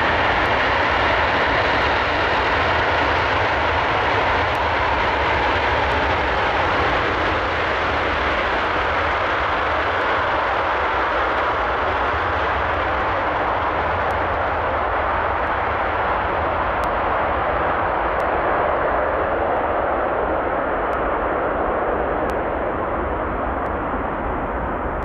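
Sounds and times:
jet engines roaring: 0:00.0 - 0:25.0.

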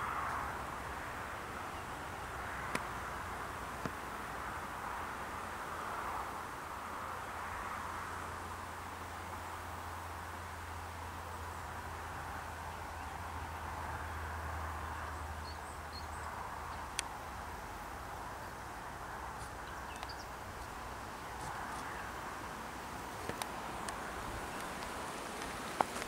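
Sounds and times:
sharp clicks: 0:23.2 - 0:24.0.

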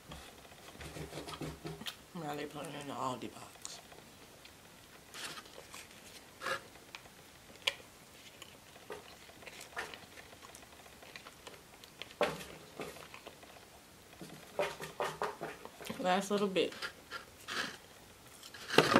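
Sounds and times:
finger scraping plastic cup: 0:16.7 - 0:17.8.

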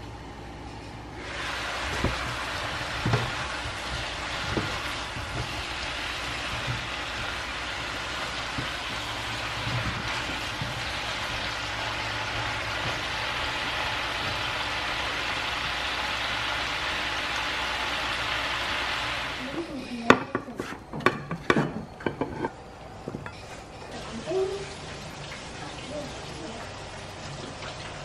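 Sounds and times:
vegetables sizzling in frying pan: 0:01.2 - 0:19.8.

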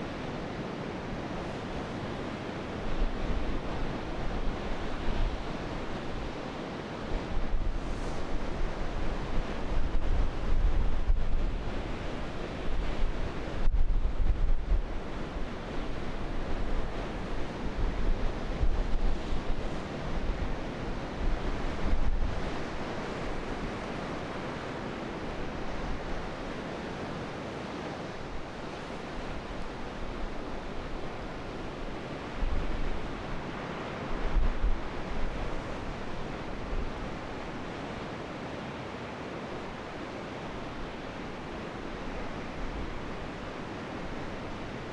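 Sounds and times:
sea waves washing: 0:00.0 - 0:13.6, 0:14.9 - 0:44.9
wind buffeting microphone: 0:07.2 - 0:23.8.

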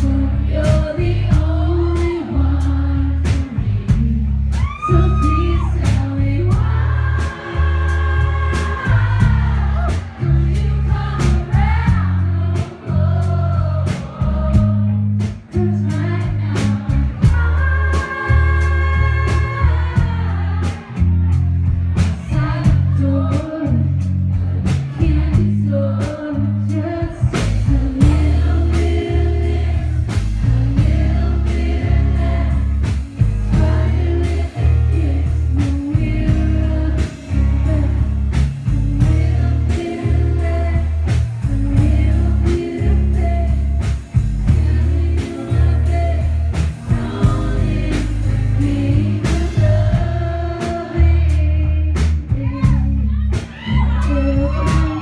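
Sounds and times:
woman singing: 0:00.0 - 0:21.0, 0:22.0 - 0:24.1, 0:24.7 - 0:55.0
heavy bass: 0:00.0 - 0:55.0
drum beat: 0:44.0 - 0:50.2.

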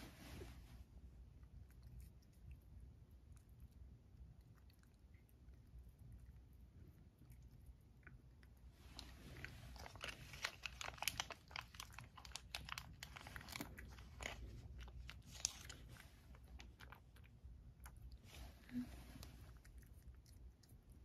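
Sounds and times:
cat crunching dry treat: 0:01.5 - 0:18.2.

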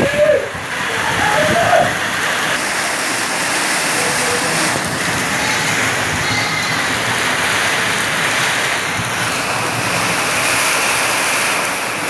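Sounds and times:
heavy rain falling: 0:00.0 - 0:12.0.

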